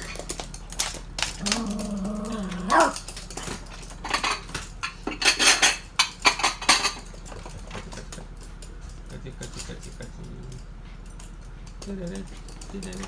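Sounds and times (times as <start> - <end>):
dog growling: 1.3 - 3.2.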